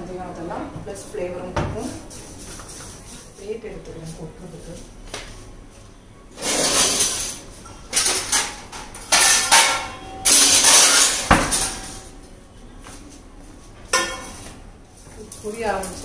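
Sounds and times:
metal plates clattering: 6.4 - 12.1.

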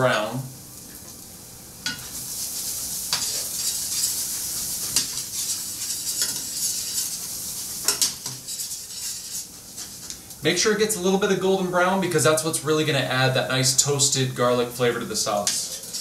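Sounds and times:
garlic sizzling in oil: 0.0 - 10.4, 14.3 - 16.0
utensil scraping pan: 2.4 - 10.0, 15.4 - 16.0.

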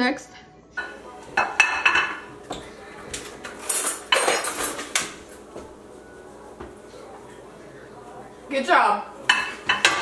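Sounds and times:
dishes clattering on counter: 0.8 - 5.7, 9.2 - 10.0.

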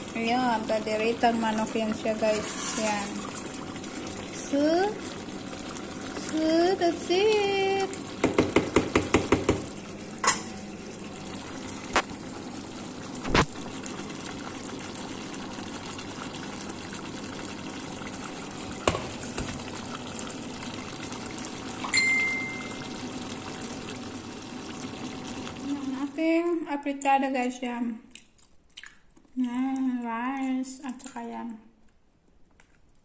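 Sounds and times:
stew bubbling in a pot: 0.0 - 27.3
wooden spoon tapping a pot: 8.2 - 9.7.

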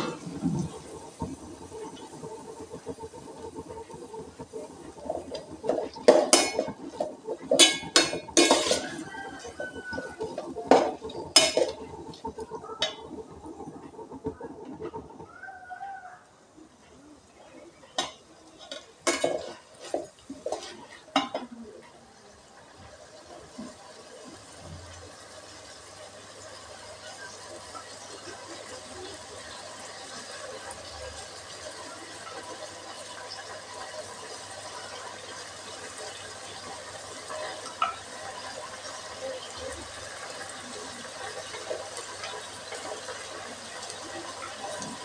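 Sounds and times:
metal spoon scraping metal pot: 5.3 - 11.8.

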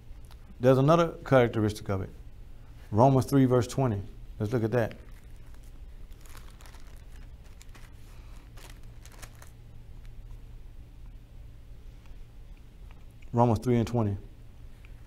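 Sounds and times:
low steady hum: 0.0 - 15.0
paper pages rustling: 5.0 - 10.1.

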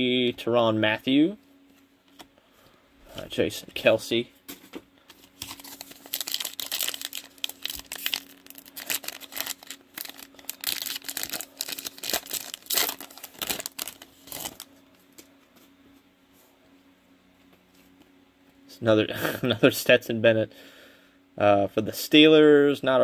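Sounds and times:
plastic wrapper crinkling and tearing: 5.2 - 14.7.

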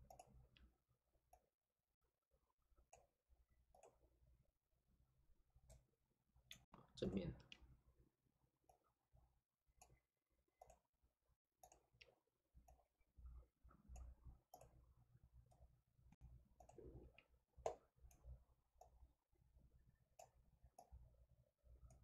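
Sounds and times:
faint computer mouse clicks: 0.0 - 0.7, 11.6 - 12.8, 13.9 - 14.8, 15.5 - 19.0, 20.2 - 21.0.

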